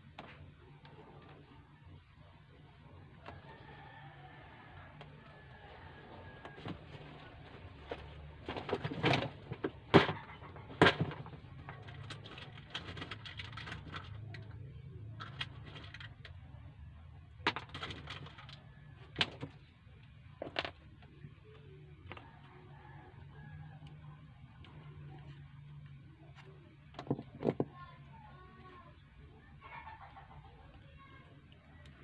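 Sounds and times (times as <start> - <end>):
low steady hum: 0.0 - 32.0
small parts and tools clicking: 10.9 - 16.6.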